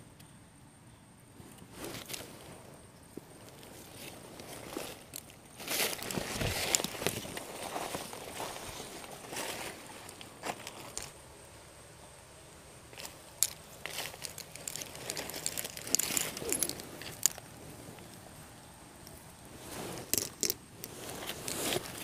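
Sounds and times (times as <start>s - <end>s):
rustling and crinkling handling: 1.4s - 11.2s, 12.9s - 22.0s
sharp clicks and crackles: 13.0s - 18.2s.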